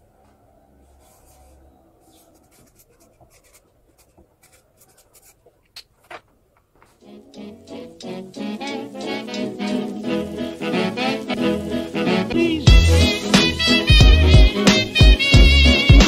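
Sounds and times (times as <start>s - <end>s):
marker scratching on paper: 1.0s - 5.5s
music: 7.0s - 16.0s.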